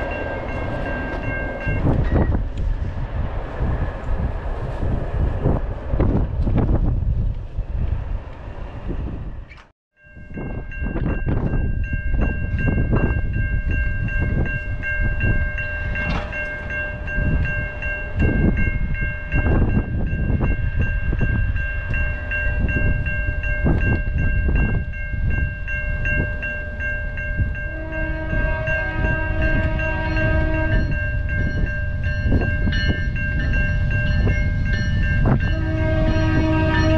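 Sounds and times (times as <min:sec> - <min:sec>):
wind on microphone: 0:00.0 - 0:09.6, 0:10.2 - 0:36.9
locomotive horn: 0:27.6 - 0:31.1, 0:35.3 - 0:36.9.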